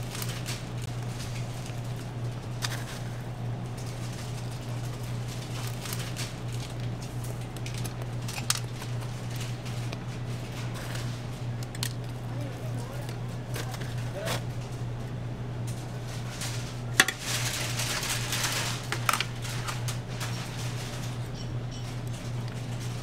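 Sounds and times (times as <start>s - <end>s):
low machine hum: 0.0s - 23.0s.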